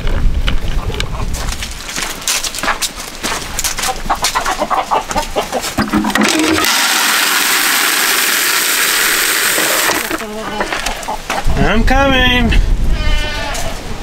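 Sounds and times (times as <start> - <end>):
footsteps on gravel: 0.1 - 5.8, 10.2 - 11.1
chickens clucking: 3.6 - 6.6, 9.6 - 11.7
feed pellets pouring into bucket: 6.0 - 10.2.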